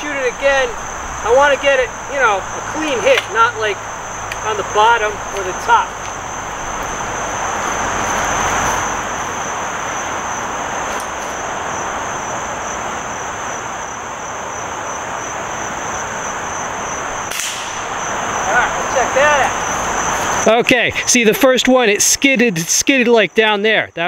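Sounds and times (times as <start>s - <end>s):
rushing background drone: 0.0s - 22.0s
insects buzzing: 0.0s - 24.0s.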